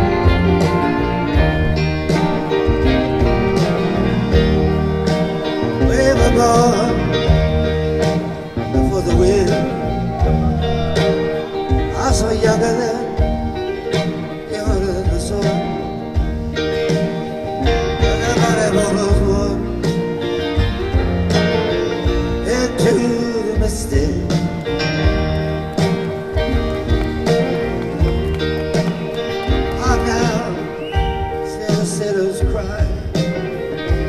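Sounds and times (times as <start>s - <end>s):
live rock band playing: 0.0s - 34.0s
man singing: 5.7s - 7.7s, 8.6s - 11.0s, 11.7s - 16.2s, 17.7s - 20.0s, 22.2s - 24.6s, 29.5s - 33.5s.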